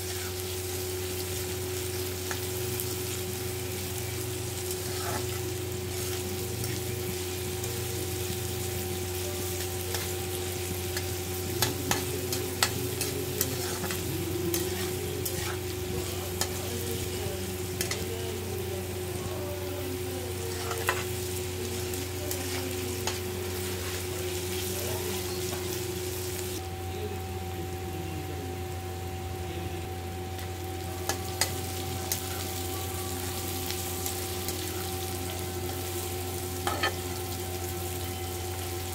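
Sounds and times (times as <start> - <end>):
onions sizzling in hot oil: 0.0 - 26.6, 29.9 - 38.9
metal spatula scraping pan: 13.0 - 16.6.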